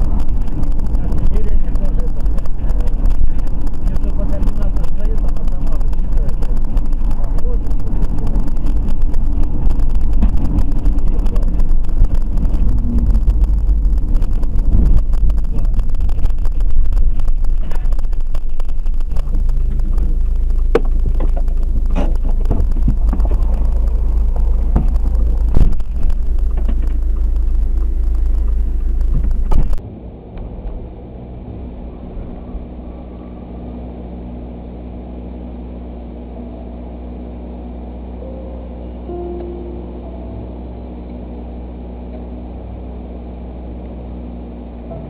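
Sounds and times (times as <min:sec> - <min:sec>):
held tones: 0:00.0 - 0:29.8
road and wind rumble in car: 0:00.0 - 0:45.0
steady hum: 0:00.0 - 0:45.0.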